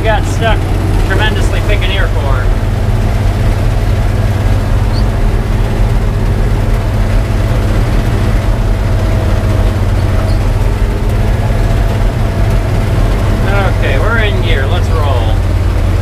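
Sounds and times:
combine engine droning: 0.0 - 16.0.

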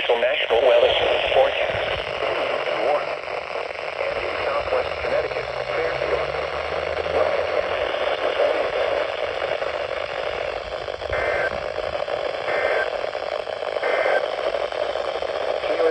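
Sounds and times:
radio static hiss: 0.0 - 15.9.

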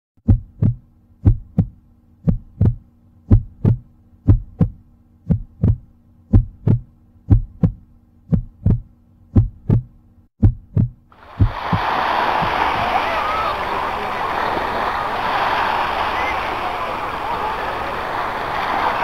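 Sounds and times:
heartbeat thumps: 0.2 - 12.9.

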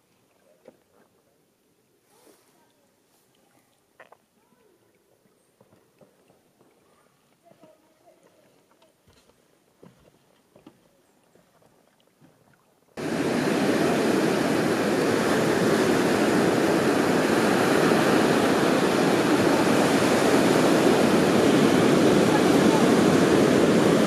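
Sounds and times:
ocean surf breaking on beach: 13.0 - 24.0.

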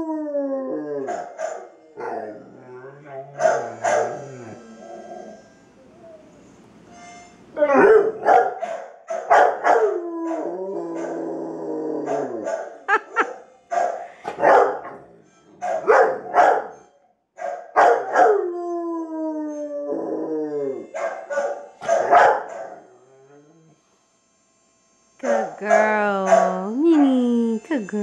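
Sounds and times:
dog howling: 0.0 - 6.4, 7.6 - 8.3, 9.4 - 12.8, 17.9 - 23.8, 25.2 - 27.1
dog barking: 1.1 - 1.7, 3.4 - 4.2, 7.8 - 9.9, 12.1 - 12.8, 13.7 - 15.0, 15.6 - 16.7, 17.4 - 18.4, 21.0 - 22.8, 25.2 - 25.6, 26.2 - 26.6.

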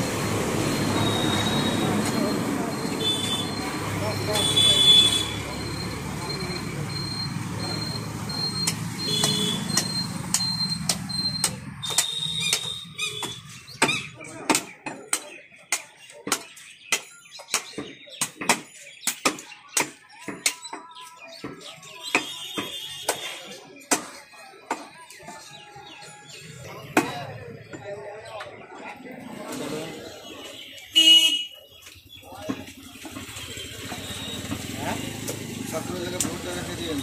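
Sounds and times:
low rumble of street traffic: 0.0 - 19.1, 21.6 - 37.0
knife chopping meat on wood block: 8.6 - 20.8.

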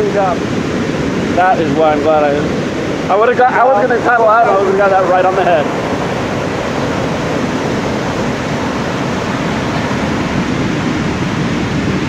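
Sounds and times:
ocean waves breaking: 0.0 - 12.0.

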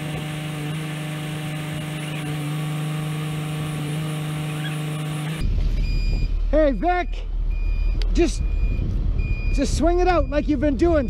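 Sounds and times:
truck engine humming: 0.0 - 11.0
wind rumble on microphone: 5.4 - 6.5, 7.6 - 11.0.

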